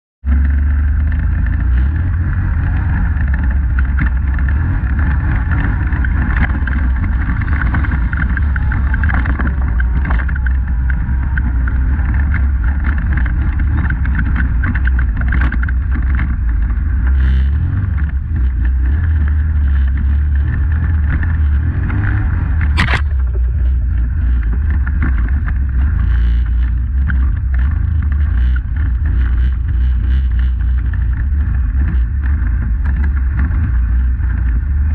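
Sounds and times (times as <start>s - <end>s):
atv engine running: 0.2s - 34.9s
sharp click: 22.6s - 23.4s.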